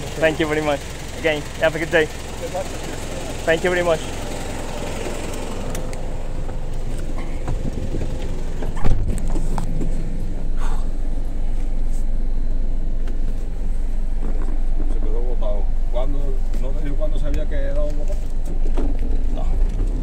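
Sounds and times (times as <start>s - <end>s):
truck engine idling: 0.0s - 20.0s
loud thump: 6.5s - 10.8s.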